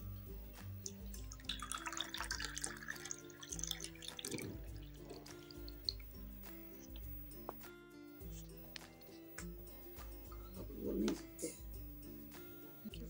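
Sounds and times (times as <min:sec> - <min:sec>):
background music: 0:00.0 - 0:13.0
juice pouring into glass: 0:00.8 - 0:06.8.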